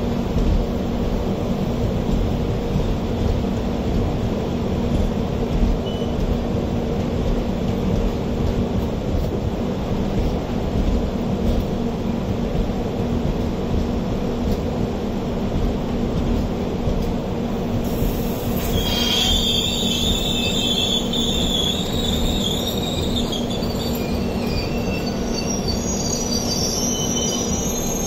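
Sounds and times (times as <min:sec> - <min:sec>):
train wheels squealing: 0:05.8 - 0:06.4, 0:17.9 - 0:28.0.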